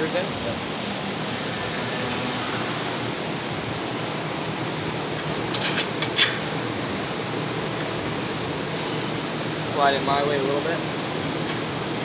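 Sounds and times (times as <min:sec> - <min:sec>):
shop background hiss: 0:08.2 - 0:10.9.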